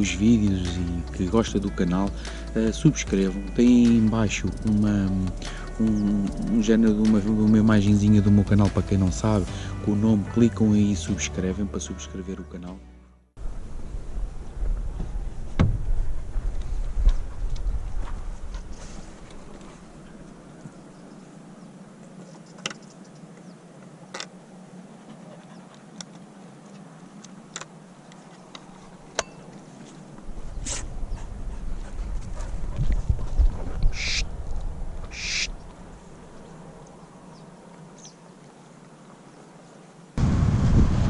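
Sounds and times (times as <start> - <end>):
wind buffeting microphone: 13.4 - 23.6, 30.0 - 36.6, 40.2 - 41.0.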